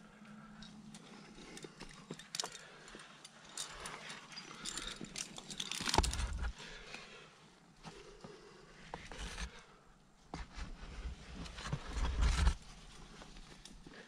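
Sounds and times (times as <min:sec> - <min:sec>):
metal climbing gear clinking: 0:00.0 - 0:07.0.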